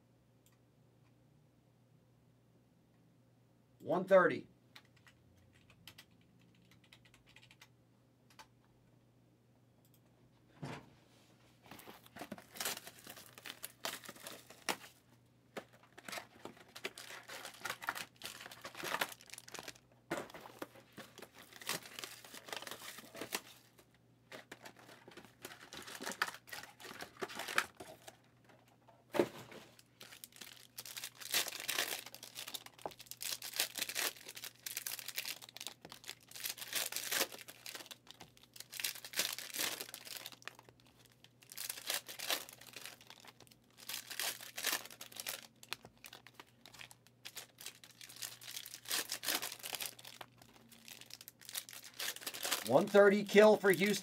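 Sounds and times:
plastic wrappers tearing and crinkling: 0:12.0 - 0:15.0, 0:15.6 - 0:28.3, 0:29.6 - 0:54.0.

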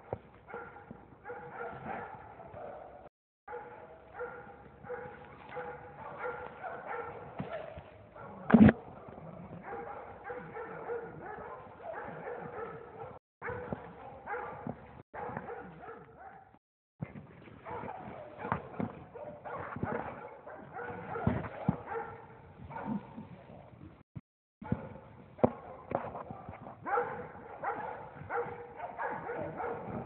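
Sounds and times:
dogs baying: 0:00.0 - 0:16.6, 0:17.6 - 0:23.7, 0:24.6 - 0:30.0.

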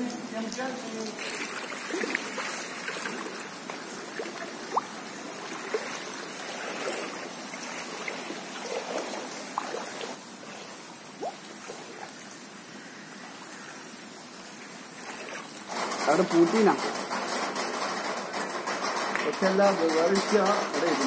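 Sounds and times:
floodwater running and trickling: 0:00.0 - 0:21.0
water gurgles: 0:00.9 - 0:15.7.

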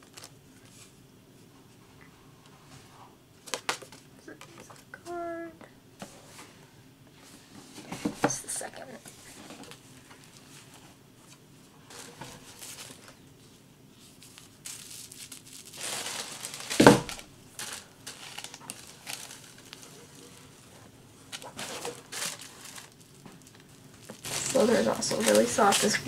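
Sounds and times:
plastic wrap crinkling: 0:11.8 - 0:13.3, 0:14.0 - 0:26.0
cloth bag rustling: 0:14.0 - 0:26.0.

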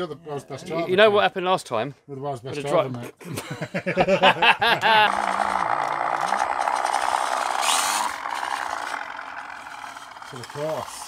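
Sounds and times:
electric motor and gears whirring: 0:05.0 - 0:11.0.

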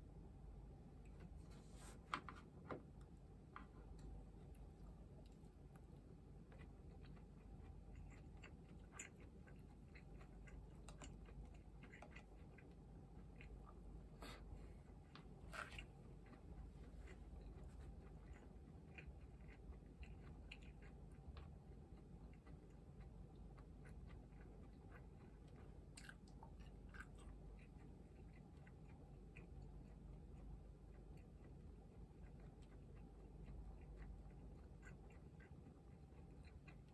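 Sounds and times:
person chewing food: 0:02.9 - 0:36.9.

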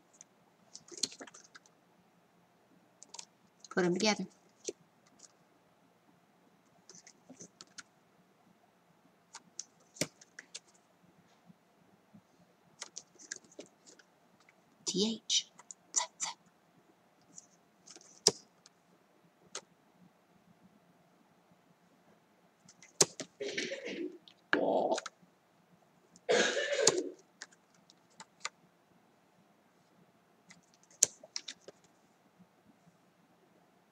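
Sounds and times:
paper cards clicking and tapping: 0:00.7 - 0:01.7, 0:09.3 - 0:10.8, 0:12.8 - 0:14.5, 0:22.7 - 0:23.4, 0:30.5 - 0:31.9
paper cards rustling and scraping: 0:00.7 - 0:01.7, 0:12.8 - 0:14.1, 0:17.3 - 0:18.4, 0:30.5 - 0:32.0
paper clicks and taps: 0:09.4 - 0:10.8, 0:22.7 - 0:23.3.

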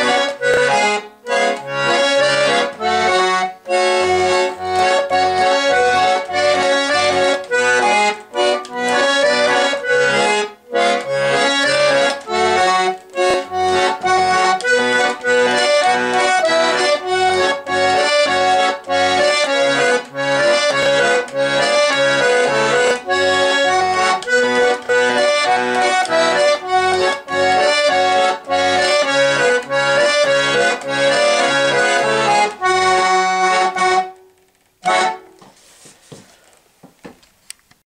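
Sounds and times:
button accordion playing lively tune: 0:00.0 - 0:36.2.

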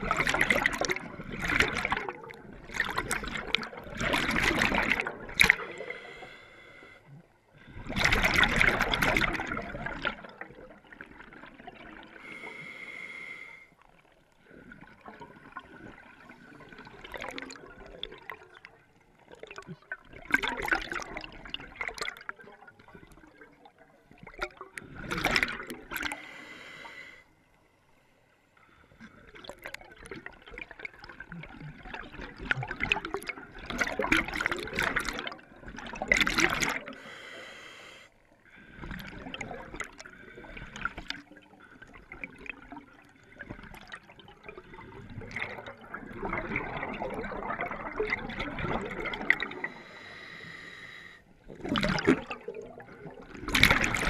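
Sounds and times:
exhaled bubbles underwater: 0:00.0 - 0:12.8, 0:13.8 - 0:26.4, 0:28.7 - 0:37.2, 0:38.4 - 0:50.6, 0:51.3 - 0:54.0
regulator inhalation hiss: 0:37.0 - 0:38.1, 0:49.8 - 0:51.2.

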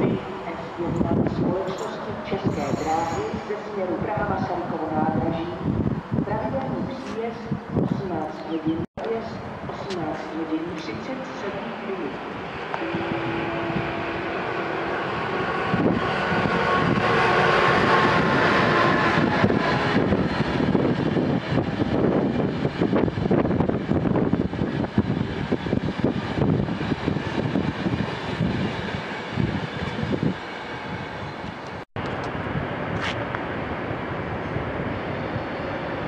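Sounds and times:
electric locomotive whine: 0:10.4 - 0:36.0.

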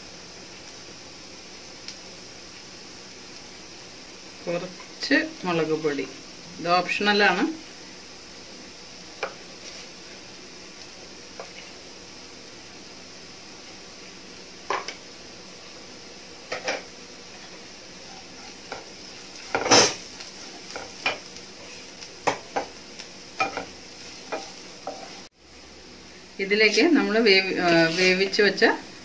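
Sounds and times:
onions sizzling: 0:00.0 - 0:29.0
spatula scraping frying pan: 0:09.2 - 0:10.2, 0:16.5 - 0:25.3, 0:26.7 - 0:28.4.

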